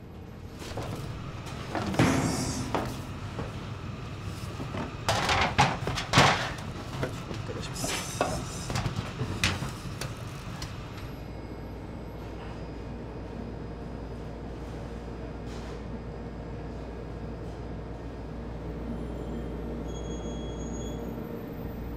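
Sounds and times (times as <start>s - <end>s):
low machine hum: 0.0s - 20.0s
kitchen knocks and bangs: 1.8s - 3.6s.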